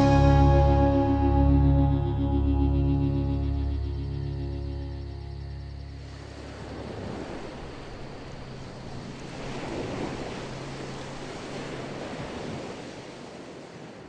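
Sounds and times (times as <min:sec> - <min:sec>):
low steady hum: 0:00.0 - 0:06.7.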